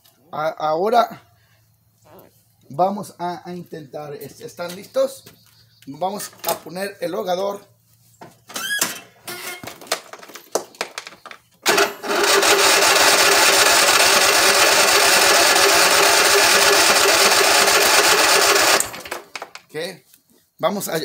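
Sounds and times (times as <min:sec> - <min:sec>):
mower engine cranking: 0:08.5 - 0:19.7.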